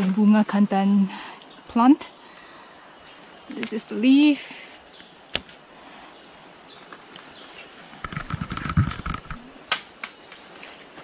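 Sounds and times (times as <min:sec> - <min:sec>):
insects droning: 0:00.0 - 0:11.0
rustling crackle: 0:07.9 - 0:11.0.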